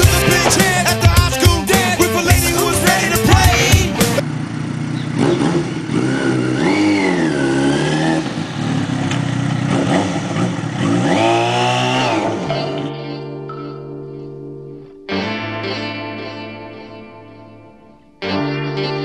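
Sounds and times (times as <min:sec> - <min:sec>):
music: 0:00.0 - 0:04.2, 0:12.1 - 0:19.0
motorcycle engine revving: 0:00.0 - 0:12.8.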